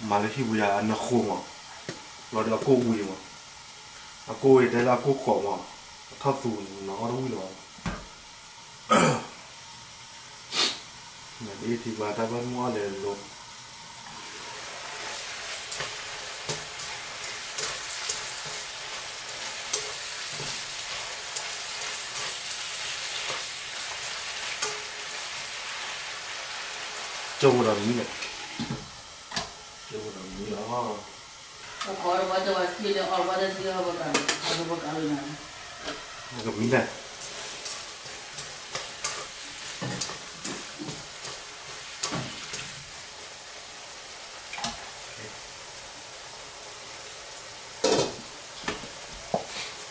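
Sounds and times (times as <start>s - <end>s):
steak sizzling in frying pan: 9.5s - 49.9s
utensil scraping pan: 14.1s - 25.2s.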